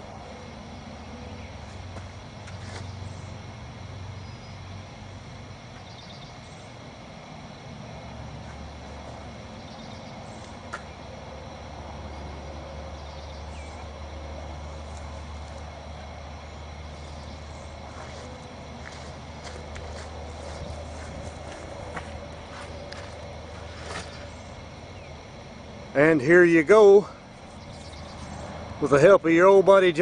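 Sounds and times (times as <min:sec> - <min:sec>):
steady low hum: 0:00.0 - 0:30.0.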